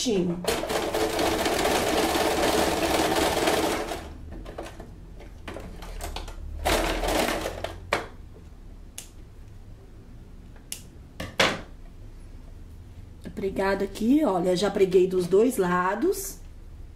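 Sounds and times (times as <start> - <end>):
sewing machine running: 0.4 - 4.8, 5.8 - 7.9.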